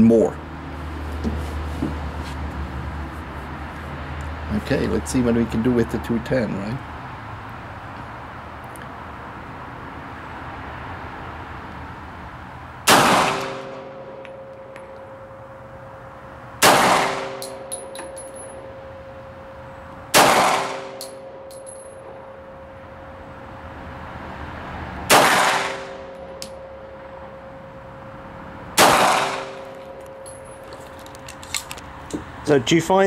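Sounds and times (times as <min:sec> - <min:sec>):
pistol shots echoing: 0:12.9 - 0:13.9, 0:16.6 - 0:17.6, 0:20.1 - 0:21.2, 0:25.1 - 0:26.0, 0:28.8 - 0:29.7
small metallic clicks: 0:29.8 - 0:32.2.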